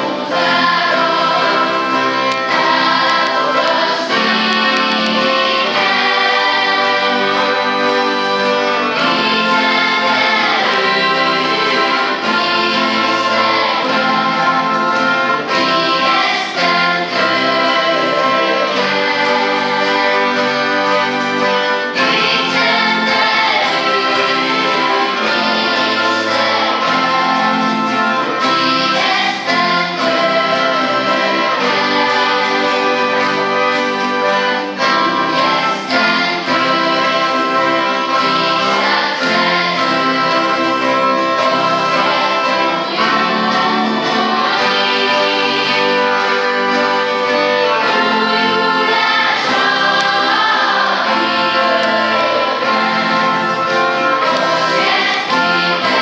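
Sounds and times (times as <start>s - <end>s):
children's choir singing: 0.0s - 56.0s
guitars: 0.0s - 56.0s
violins: 0.0s - 56.0s.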